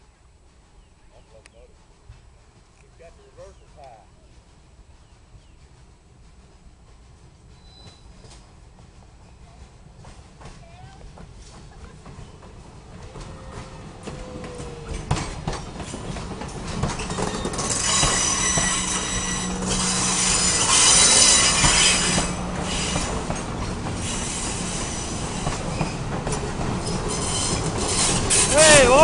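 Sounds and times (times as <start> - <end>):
train wheels squealing: 7.4 - 8.5, 13.1 - 29.0
wheels clicking over rail joints: 9.6 - 29.0.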